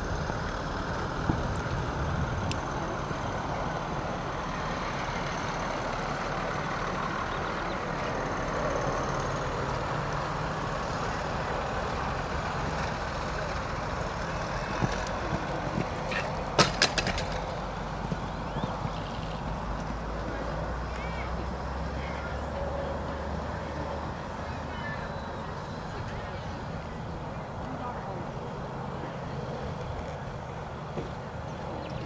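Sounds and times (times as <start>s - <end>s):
engine-like rumble: 0.0s - 32.0s
horse hooves knocking: 14.1s - 20.5s.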